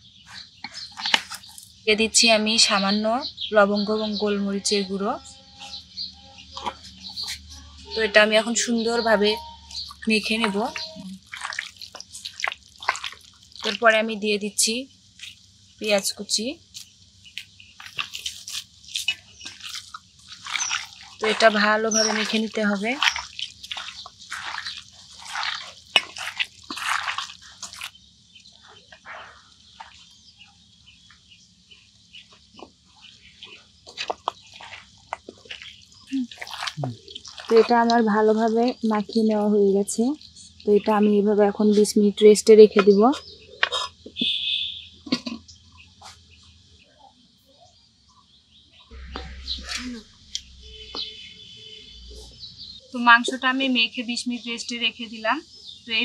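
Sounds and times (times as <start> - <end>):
small birds chirping: 0.0 - 56.0
wet squelching of kneaded meat: 0.1 - 1.8, 4.7 - 44.9.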